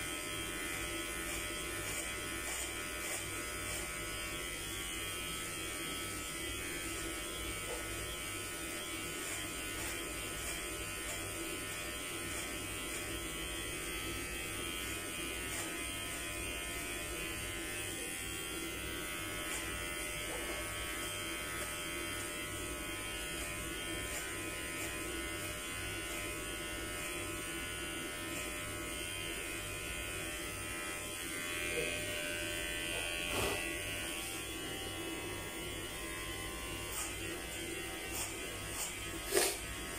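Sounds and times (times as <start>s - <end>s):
electric hair clippers buzzing: 0.0s - 39.9s.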